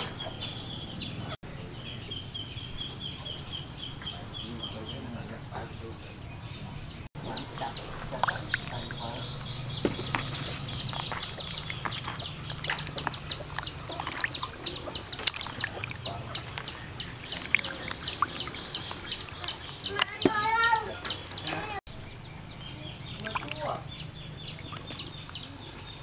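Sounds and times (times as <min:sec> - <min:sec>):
birds chirping rapidly: 0:00.0 - 0:26.0
water splashing in a basin: 0:07.3 - 0:20.4, 0:23.1 - 0:25.1.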